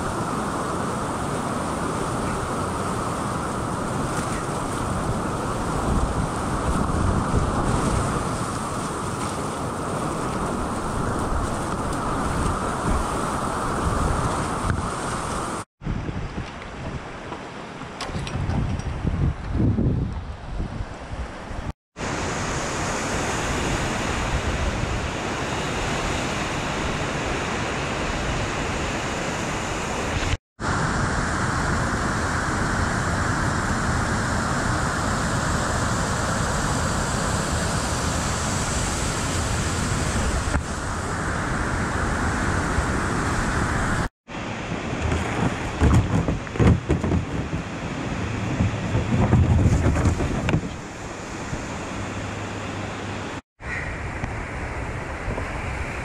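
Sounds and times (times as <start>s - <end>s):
roar of rushing water: 0.0s - 16.0s, 20.3s - 56.0s
low bumps and knocks: 45.0s - 47.8s, 48.4s - 50.8s.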